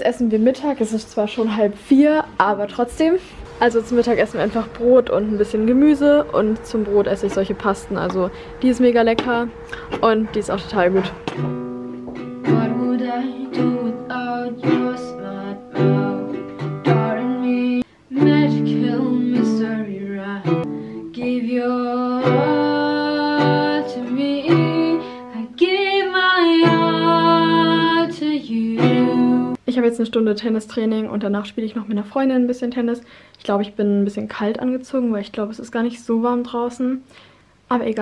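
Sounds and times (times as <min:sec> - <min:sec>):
acoustic guitar strumming: 0:03.4 - 0:29.6
person singing: 0:12.4 - 0:29.6.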